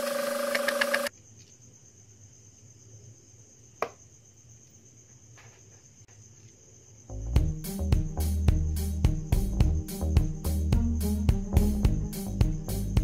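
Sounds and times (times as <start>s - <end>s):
cricket trilling: 0.0s - 7.9s.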